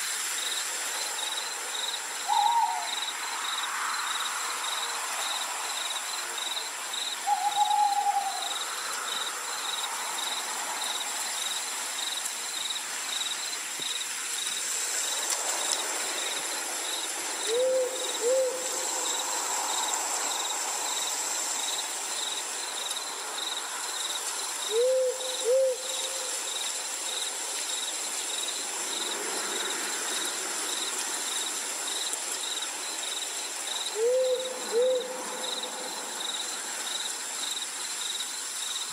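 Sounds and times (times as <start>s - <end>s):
crickets chirping: 0.0s - 38.9s
owl hooting: 2.3s - 2.9s, 7.2s - 8.6s, 17.5s - 18.7s, 24.7s - 26.3s, 34.0s - 35.2s.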